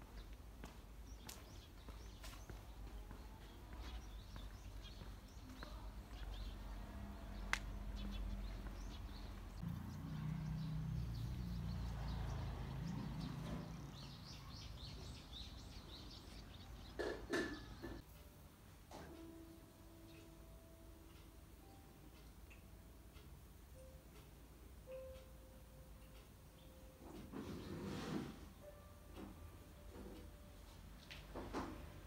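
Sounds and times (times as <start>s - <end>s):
birds chirping: 0.0s - 18.0s.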